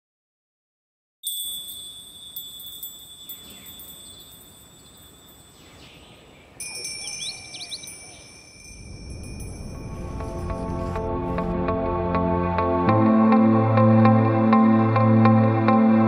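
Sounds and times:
high ringing chime tones: 0:01.2 - 0:11.5.

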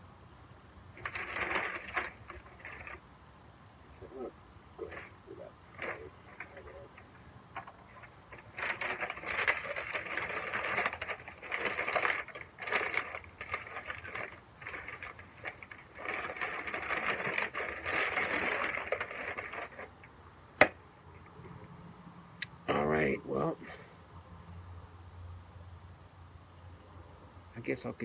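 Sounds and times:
paper crinkling and rustling: 0:00.9 - 0:03.0, 0:04.8 - 0:20.8.

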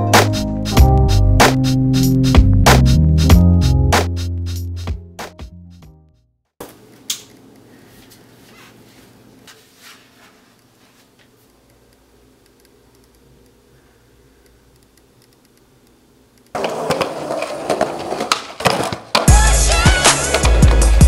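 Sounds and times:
room hum: 0:06.6 - 0:20.8
faint clicks: 0:11.4 - 0:13.6
skateboard clacking: 0:16.5 - 0:21.0
skateboard wheels rolling on concrete: 0:16.5 - 0:21.0.

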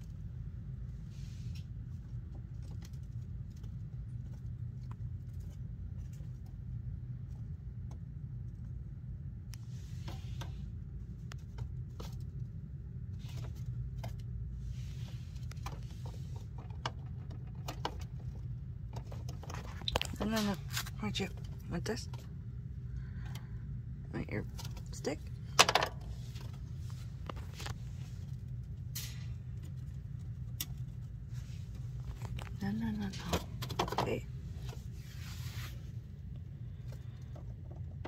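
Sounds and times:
low background hum: 0:00.0 - 0:38.0
soft rustles: 0:26.1 - 0:32.6, 0:34.3 - 0:37.6.

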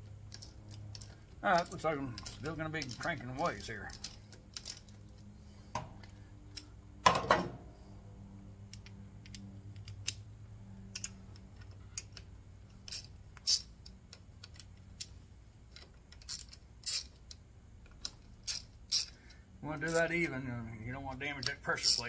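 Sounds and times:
torque wrench ratchet clicking: 0:11.0 - 0:11.2, 0:12.0 - 0:15.1, 0:16.2 - 0:17.4, 0:18.0 - 0:20.0.

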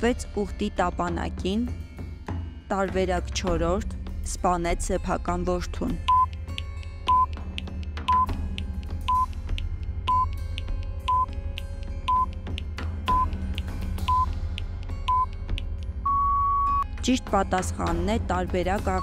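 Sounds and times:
soft background music: 0:00.0 - 0:19.0
timer beeping: 0:06.0 - 0:06.4, 0:07.1 - 0:07.4, 0:08.1 - 0:08.4, 0:09.1 - 0:09.3, 0:10.1 - 0:10.4, 0:11.0 - 0:11.4, 0:12.1 - 0:12.4, 0:13.1 - 0:13.4, 0:14.0 - 0:14.4, 0:15.1 - 0:15.4, 0:16.1 - 0:16.8.

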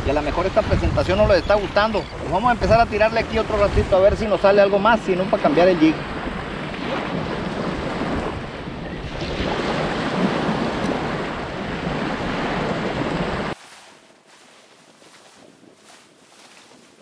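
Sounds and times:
wind buffeting microphone: 0:00.0 - 0:13.6
surf washing on shore: 0:00.0 - 0:14.0.

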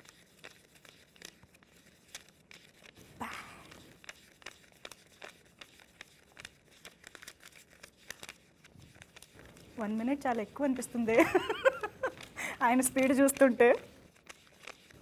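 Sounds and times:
banknotes being flicked: 0:00.0 - 0:15.0
paper swish: 0:12.1 - 0:15.0.

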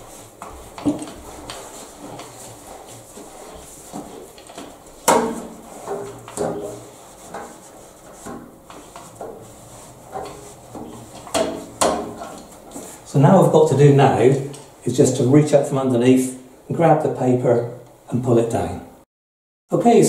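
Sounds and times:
roller handle knocking on radiator: 0:10.1 - 0:12.5.

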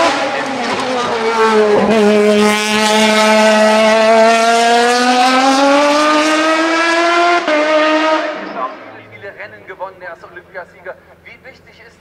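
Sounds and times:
race car engine at high revs: 0:00.0 - 0:09.4.

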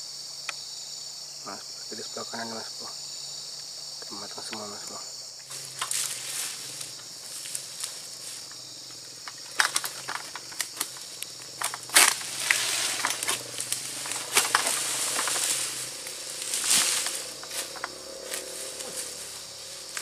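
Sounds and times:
high insect drone: 0:00.0 - 0:20.0
rustling: 0:05.4 - 0:20.0
sharp clicks and crackles: 0:09.2 - 0:19.1
loud crack: 0:09.5 - 0:17.9.

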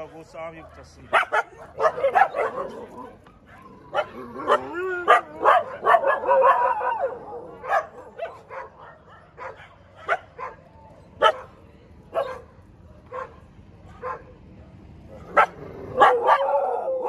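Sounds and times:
dogs barking: 0:00.0 - 0:17.0
dogs yelping and whining: 0:01.1 - 0:11.4, 0:15.1 - 0:17.0.

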